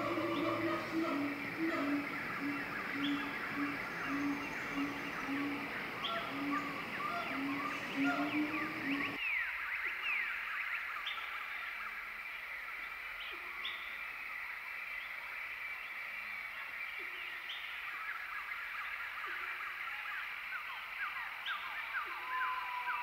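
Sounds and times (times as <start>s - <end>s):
bird calling falling notes: 0.0s - 9.2s
low hooting note: 0.0s - 9.2s
chorus of birds: 0.0s - 12.1s.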